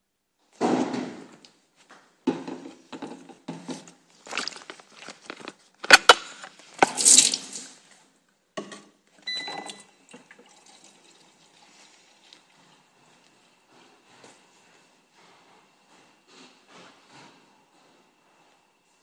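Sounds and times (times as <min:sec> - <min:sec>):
water splashing into plastic bottle: 0:04.2 - 0:07.8.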